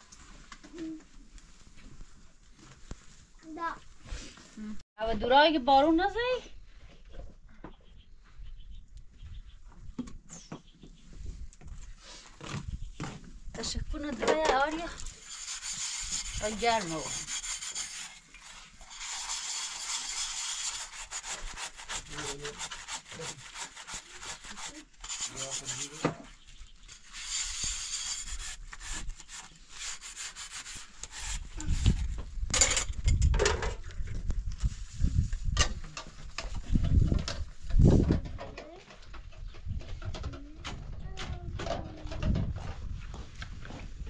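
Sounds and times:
scourer scraping metal cup: 14.9 - 32.0.

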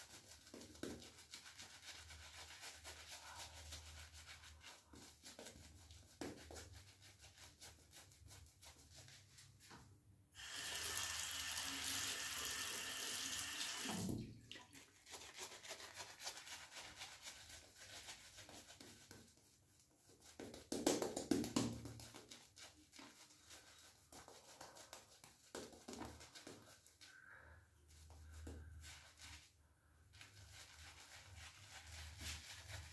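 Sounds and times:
shaving brush rubbing on face: 0.0 - 9.8, 14.9 - 20.7, 21.8 - 27.2, 27.9 - 32.9.

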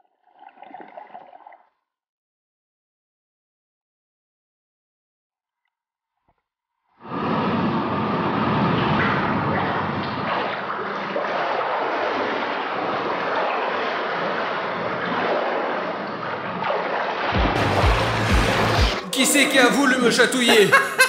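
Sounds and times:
underwater pool water churning: 0.0 - 1.8, 7.0 - 19.0
background music: 17.4 - 21.0.

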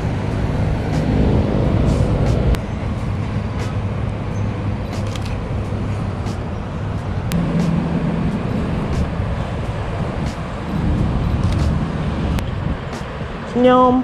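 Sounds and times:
engine-like hum: 0.0 - 14.0
road traffic rumble: 0.0 - 14.0
sharp clicks: 5.0 - 5.4, 11.4 - 12.5.

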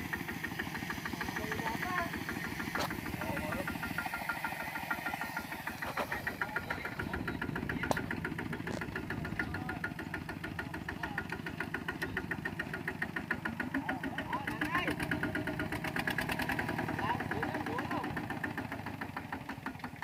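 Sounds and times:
diesel engine chugging under load: 0.0 - 20.0.

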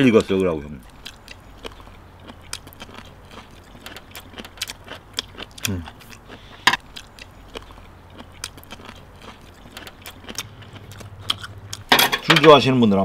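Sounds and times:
chewing and smacking: 0.0 - 11.9
murmured voice: 5.6 - 6.1.

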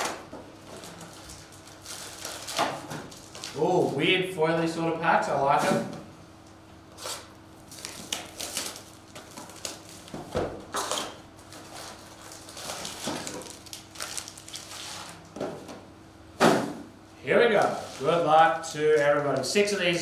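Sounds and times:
foil card packs rustling: 0.6 - 4.1, 7.0 - 15.3.

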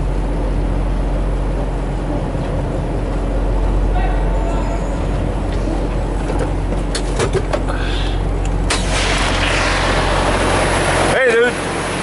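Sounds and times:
diesel truck engine idling: 0.0 - 12.0
hiss of noise: 7.8 - 11.1.

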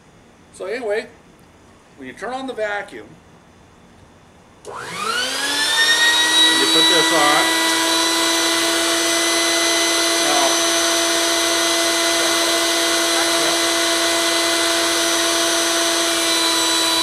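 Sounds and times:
vacuum cleaner motor whining: 4.6 - 17.0.

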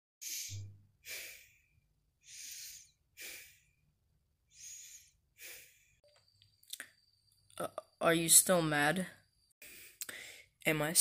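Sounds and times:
person breathing heavily: 0.2 - 3.9, 4.5 - 6.0, 9.6 - 10.6.

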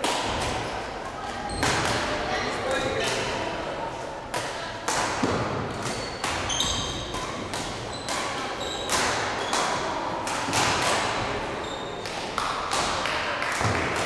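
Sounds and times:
rackets hitting shuttlecock: 0.0 - 0.9, 1.5 - 2.2, 4.3 - 14.0
shoes squeaking on court floor: 0.6 - 3.1, 5.2 - 10.0, 11.4 - 12.3.

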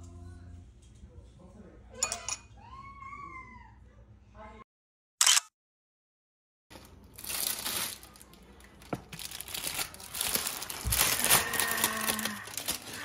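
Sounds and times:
parchment paper crinkling: 6.7 - 13.0.

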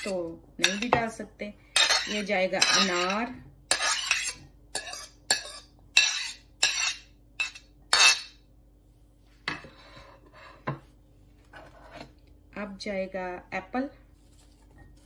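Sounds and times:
metal spoon scraping ceramic plate: 1.8 - 8.3, 11.6 - 12.1.

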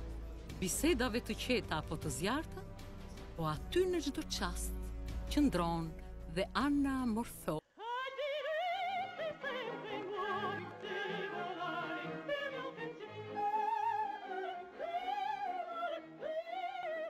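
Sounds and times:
soprano singing opera: 7.6 - 17.0.

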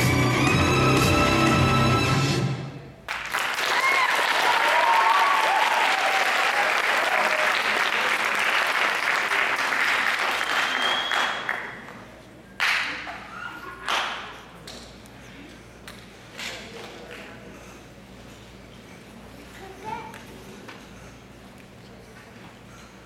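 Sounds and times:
audience applause: 3.1 - 12.0
high whistle: 10.6 - 11.7.

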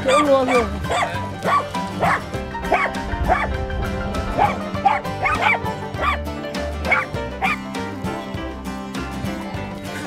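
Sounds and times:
dog barking: 0.0 - 3.5, 4.4 - 6.2, 6.9 - 7.6
background music: 0.0 - 10.0.

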